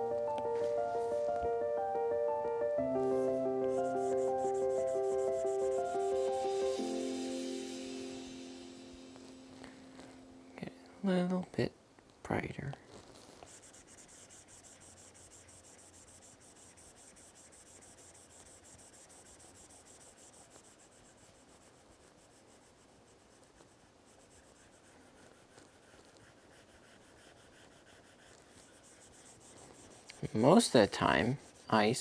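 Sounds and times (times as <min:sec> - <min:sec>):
stylus rubbing on glass screen: 0:12.9 - 0:32.0.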